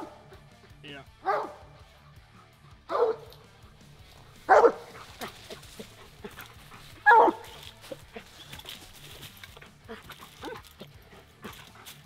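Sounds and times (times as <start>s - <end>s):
dog barking: 0.0s - 0.3s, 1.2s - 1.7s, 2.9s - 3.4s, 4.5s - 8.5s, 9.9s - 11.8s.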